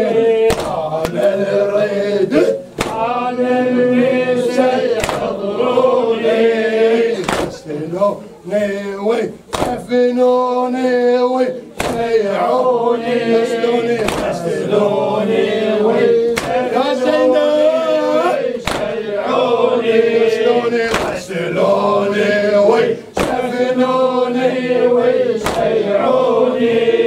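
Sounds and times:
men chanting in unison: 0:00.0 - 0:27.0
hands striking chests: 0:02.8 - 0:03.0, 0:07.2 - 0:07.6.

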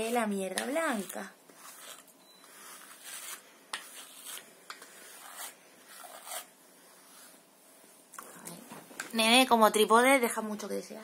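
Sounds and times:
comb scratching through hair: 0:00.0 - 0:07.4.

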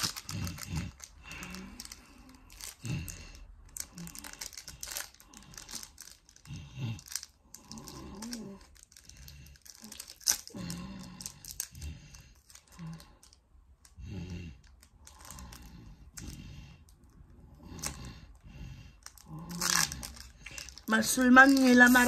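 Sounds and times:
foil packet crinkling: 0:00.0 - 0:13.4, 0:19.0 - 0:22.0.

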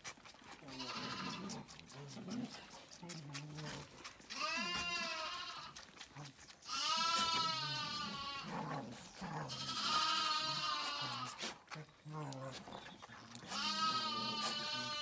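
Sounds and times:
lambs bleating: 0:00.5 - 0:01.8, 0:04.2 - 0:06.1, 0:06.7 - 0:11.6, 0:13.3 - 0:15.0.

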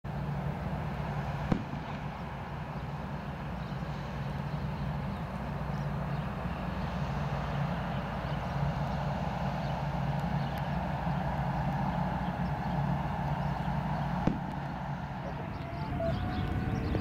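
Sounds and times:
jet engines running: 0:00.1 - 0:17.0.

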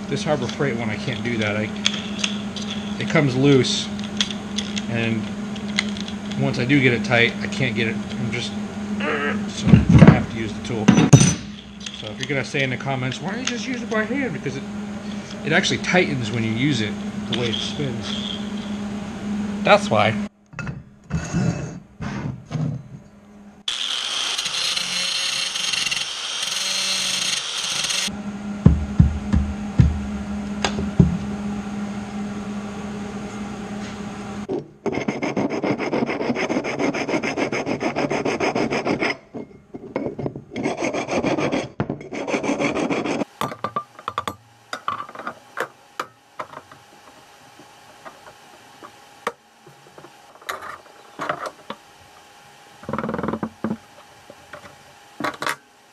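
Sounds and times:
angle grinder grinding steel: 0:00.0 - 0:20.2, 0:23.7 - 0:28.2, 0:34.9 - 0:55.6
file rasping on steel: 0:34.8 - 0:39.5, 0:40.5 - 0:43.3.

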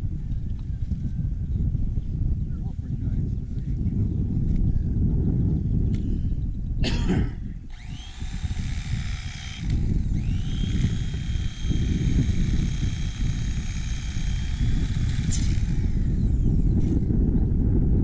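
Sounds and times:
electric fillet knife whining: 0:07.7 - 0:17.2.

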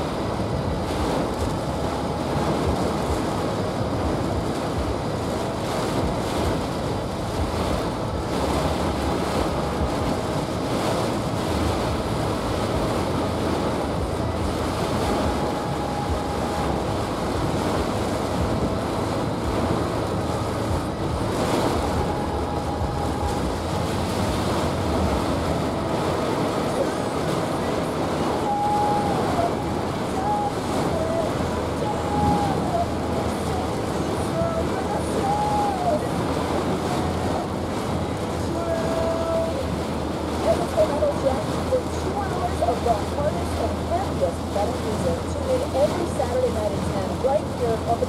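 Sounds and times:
tyre noise on wet road: 0:00.0 - 0:28.8
heavy rain on vehicle roof: 0:00.0 - 0:48.0.

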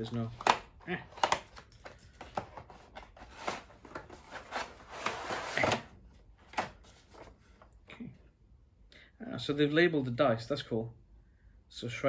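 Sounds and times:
cards rubbing and rustling: 0:02.2 - 0:05.9.

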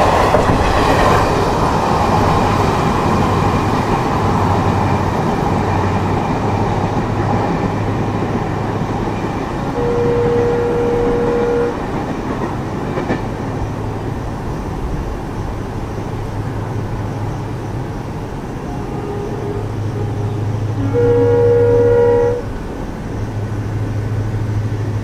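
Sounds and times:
low rumble of trains: 0:00.0 - 0:25.0
locomotive horn blowing: 0:09.7 - 0:12.0, 0:18.7 - 0:22.5
faint shorter horn: 0:09.8 - 0:11.8, 0:18.7 - 0:22.5.

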